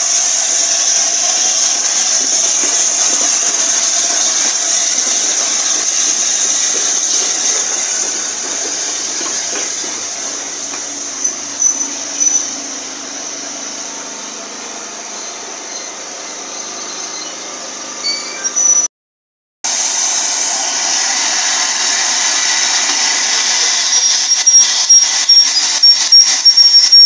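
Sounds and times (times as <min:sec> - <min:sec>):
steam hissing: 0:00.0 - 0:17.9, 0:19.7 - 0:27.0
train coaches rolling: 0:00.0 - 0:18.8, 0:19.7 - 0:27.0
high squeaks: 0:01.0 - 0:12.6, 0:15.1 - 0:18.9.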